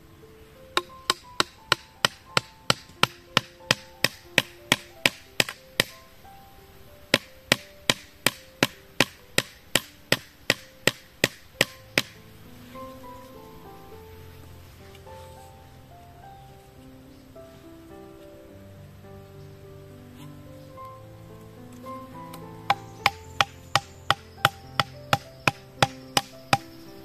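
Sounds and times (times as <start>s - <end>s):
machete striking bamboo: 0.8s - 5.9s, 7.2s - 12.2s.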